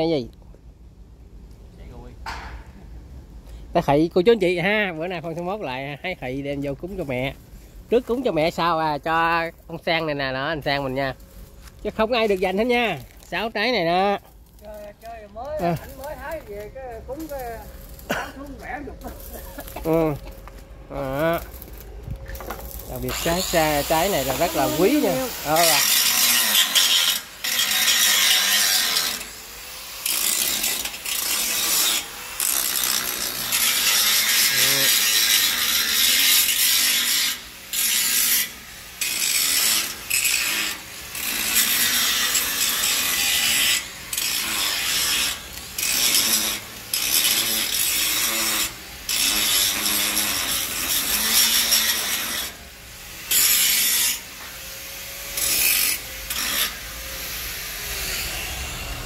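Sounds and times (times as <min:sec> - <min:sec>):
angle grinder cutting steel: 0:12.0 - 0:59.0.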